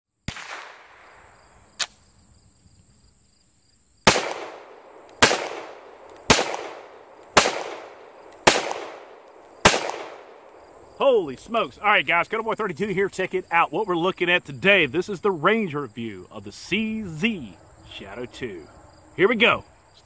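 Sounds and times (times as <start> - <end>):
pistol shots with echo: 0.3 - 1.2, 4.1 - 10.6.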